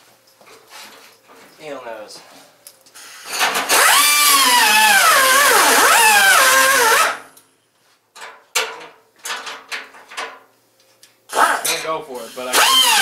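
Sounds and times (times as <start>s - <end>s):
air tool bursts: 3.0s - 7.3s, 11.3s - 13.0s.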